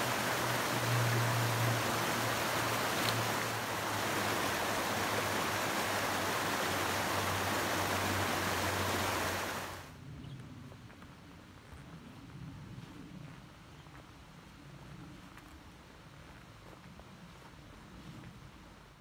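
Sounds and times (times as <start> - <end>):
rushing water: 0.0 - 9.9.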